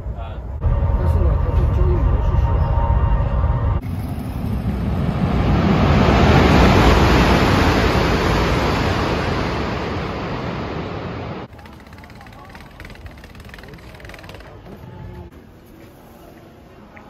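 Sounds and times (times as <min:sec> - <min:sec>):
high-speed train rushing past: 0:00.0 - 0:11.5
rumble inside moving train: 0:00.0 - 0:15.3.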